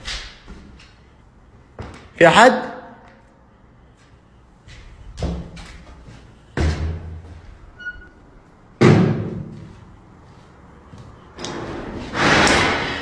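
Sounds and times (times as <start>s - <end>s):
door banging: 8.8s - 9.6s, 11.4s - 13.0s.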